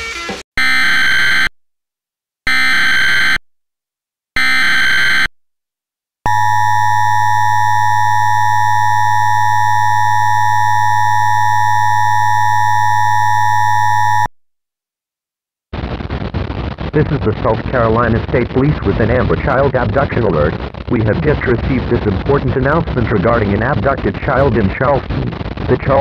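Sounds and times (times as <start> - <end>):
two-tone alert signal: 6.3 - 14.3.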